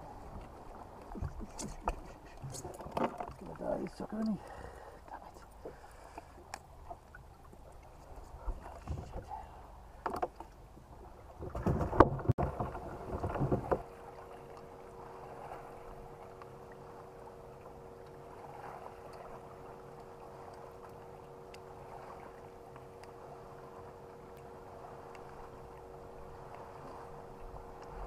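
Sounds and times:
loud knocks and rustling: 0:11.4 - 0:13.8
electric trolling motor humming: 0:12.6 - 0:28.0.

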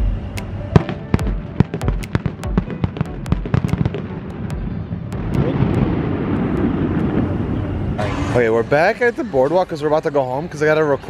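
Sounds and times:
fireworks rumbling: 0:00.0 - 0:09.0
fireworks bangs and crackling pops: 0:00.8 - 0:07.5.

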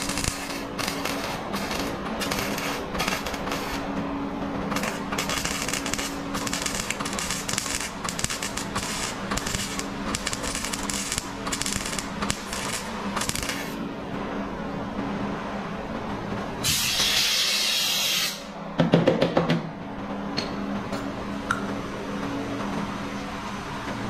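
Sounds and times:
welder crackling: 0:00.0 - 0:03.9, 0:04.6 - 0:13.8.

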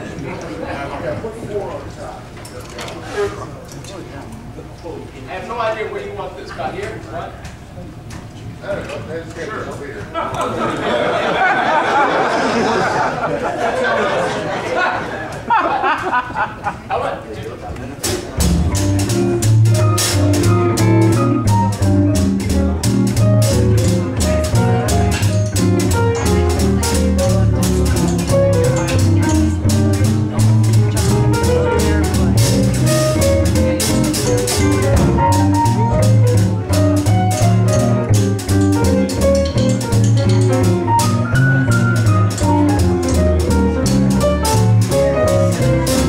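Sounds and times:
upright bass walking: 0:00.0 - 0:12.0, 0:15.3 - 0:46.0
drum kit cymbal strokes: 0:18.1 - 0:46.0
saxophone and brass melody: 0:18.6 - 0:46.0.

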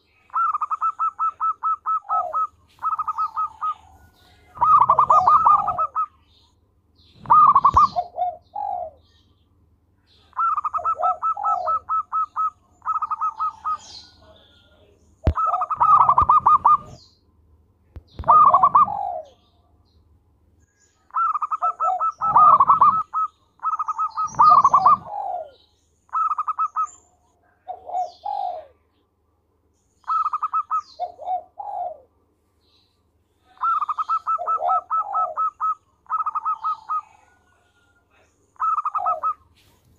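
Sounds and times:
dove cooing: 0:00.0 - 0:06.2, 0:07.2 - 0:09.1, 0:10.3 - 0:17.1, 0:18.2 - 0:19.5, 0:21.1 - 0:27.0, 0:27.6 - 0:28.8, 0:30.0 - 0:32.1, 0:33.4 - 0:37.9, 0:38.6 - 0:39.4.

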